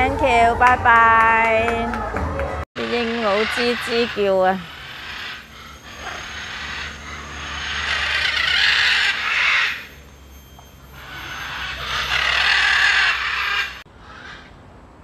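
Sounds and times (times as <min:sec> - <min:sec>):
macaws squawking: 0:02.8 - 0:10.1, 0:10.8 - 0:14.5.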